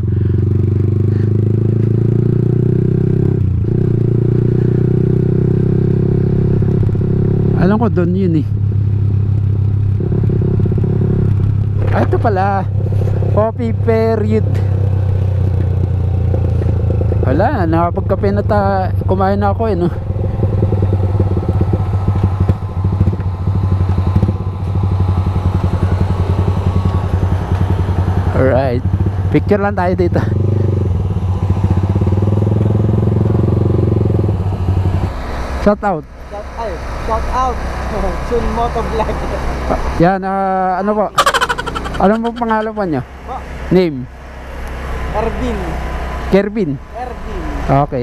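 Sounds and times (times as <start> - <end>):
motorcycle engine running: 0.0 - 35.2, 40.7 - 48.0.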